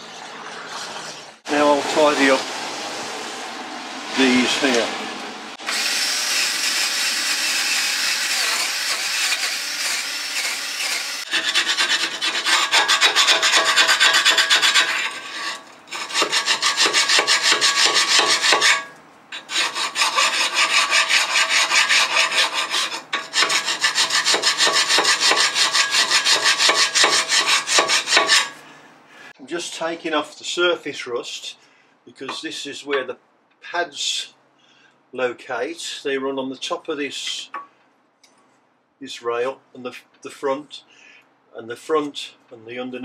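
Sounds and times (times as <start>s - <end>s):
file scraping rusty steel: 5.7s - 28.6s.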